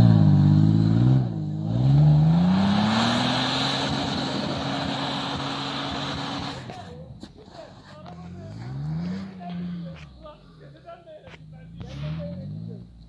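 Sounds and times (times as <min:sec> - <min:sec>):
engine revving hard: 0:00.0 - 0:06.8, 0:08.3 - 0:10.1
tyres churning snow: 0:00.0 - 0:12.7.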